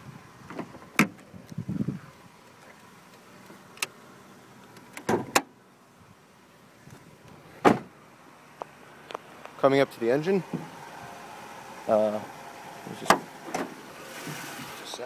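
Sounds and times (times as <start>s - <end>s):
car door and hood release clunks: 0.5s - 1.2s, 4.8s - 5.5s, 7.6s - 7.9s, 12.8s - 14.5s.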